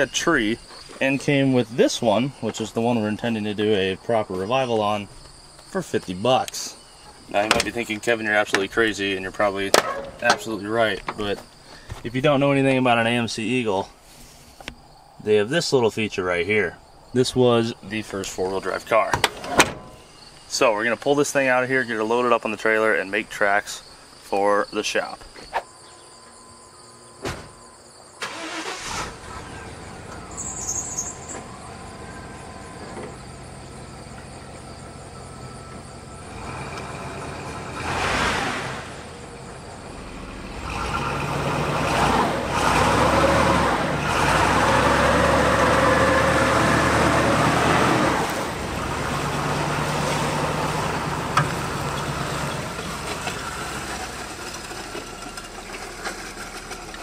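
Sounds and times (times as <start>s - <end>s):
pickup truck engine running: 28.3s - 38.4s, 39.0s - 57.0s.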